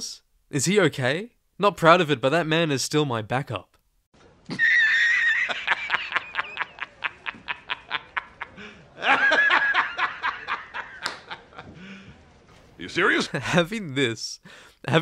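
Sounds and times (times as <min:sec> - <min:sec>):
man laughing hard: 0:04.5 - 0:11.8.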